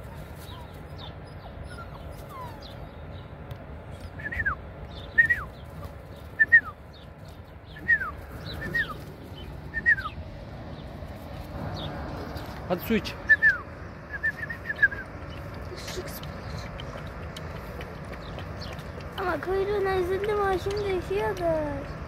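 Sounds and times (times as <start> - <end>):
puppy whining: 0.0 - 3.1.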